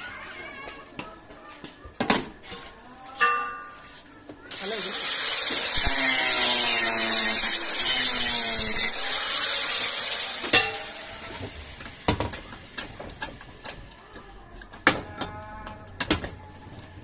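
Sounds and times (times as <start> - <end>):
power tool whining on metal pan: 4.5 - 12.2.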